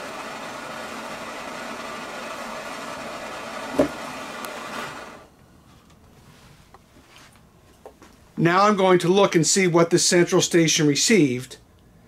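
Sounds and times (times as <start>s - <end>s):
gas torch flame hissing: 0.0s - 5.3s
sharp knock: 3.7s - 4.0s.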